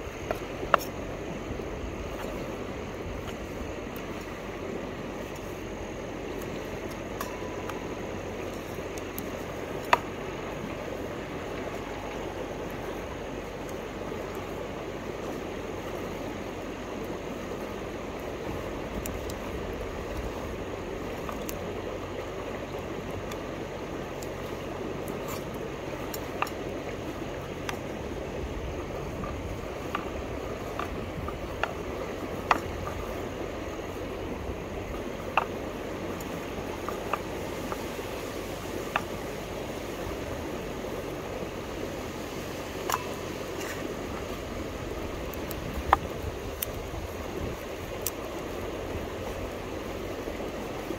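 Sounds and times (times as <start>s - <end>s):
river water flowing: 0.0s - 50.9s
small sharp clicks: 48.0s - 48.6s.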